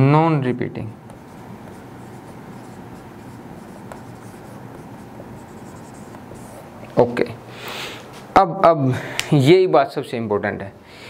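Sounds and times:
steady background hum: 0:00.0 - 0:11.0
scratching on a board: 0:01.1 - 0:06.6.

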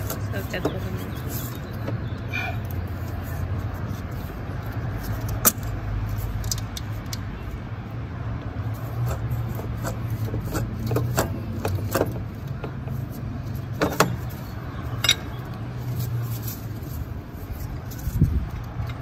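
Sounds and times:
metal clicks and knocks: 0:09.1 - 0:12.9.

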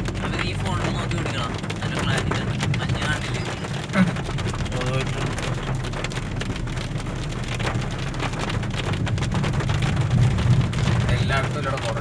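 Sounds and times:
car driving on wet road: 0:00.0 - 0:12.0
rain pattering on car: 0:00.0 - 0:12.0.

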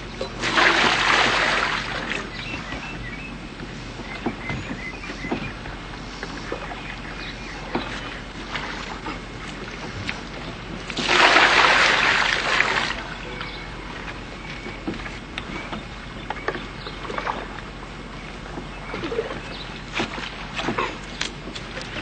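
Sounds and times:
water splashing in bucket: 0:00.4 - 0:02.6, 0:10.9 - 0:13.1.

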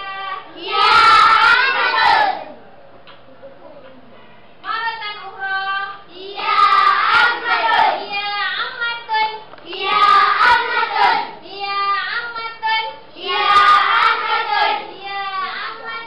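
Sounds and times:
children singing: 0:00.0 - 0:02.6, 0:06.2 - 0:08.2, 0:09.7 - 0:11.4, 0:13.2 - 0:16.0.

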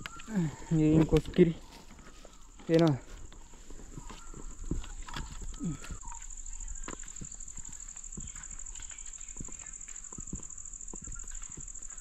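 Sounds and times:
high-pitched insect drone: 0:03.9 - 0:12.0.

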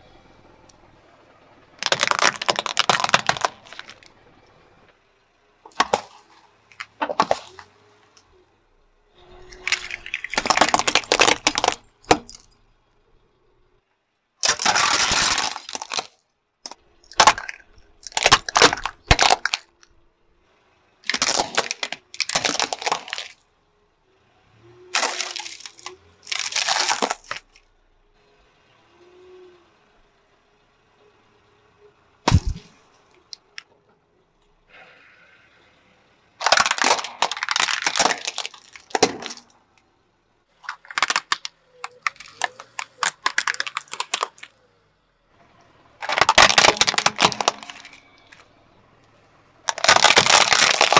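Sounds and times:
tyre crushing objects: 0:01.8 - 0:04.1, 0:05.7 - 0:07.7, 0:09.5 - 0:12.5, 0:14.4 - 0:16.1, 0:17.1 - 0:19.7, 0:21.1 - 0:23.4, 0:25.0 - 0:27.4, 0:32.3 - 0:32.8, 0:36.4 - 0:39.4, 0:46.0 - 0:48.1, 0:49.7 - 0:50.9.

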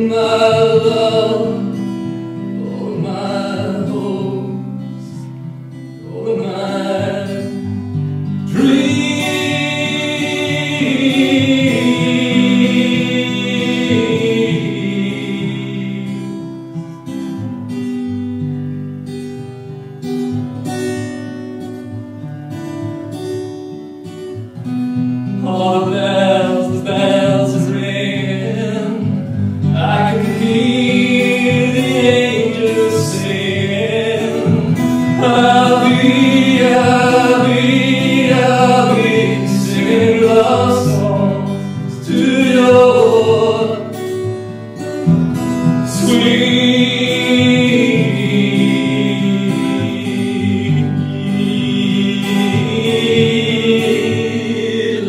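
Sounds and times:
acoustic guitar: 0:00.0 - 0:55.0
person singing: 0:08.5 - 0:16.5, 0:29.7 - 0:44.2, 0:45.8 - 0:55.0.

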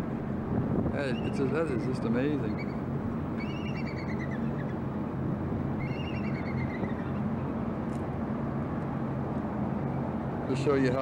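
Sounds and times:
eagle chattering call: 0:03.4 - 0:04.7.

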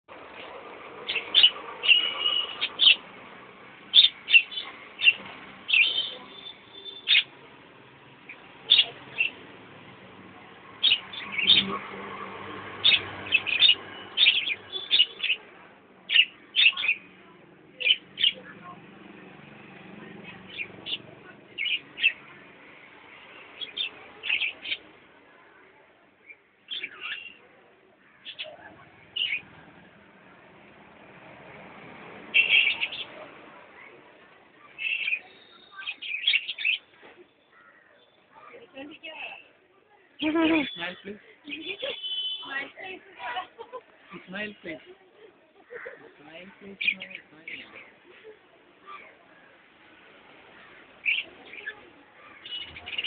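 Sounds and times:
small parrots chirping: 0:01.1 - 0:03.1, 0:03.9 - 0:07.4, 0:08.3 - 0:09.4, 0:10.8 - 0:11.8, 0:12.7 - 0:15.5, 0:32.4 - 0:33.2, 0:34.8 - 0:36.9.

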